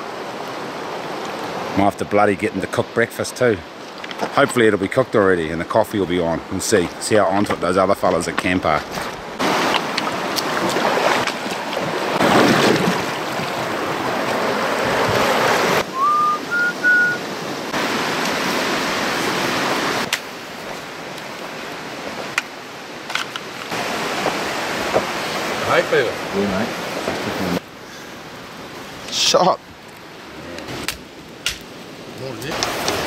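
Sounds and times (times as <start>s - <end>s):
river water rushing: 0.0s - 33.0s
wind on microphone: 9.7s - 17.4s
three-note whistle: 15.9s - 17.2s.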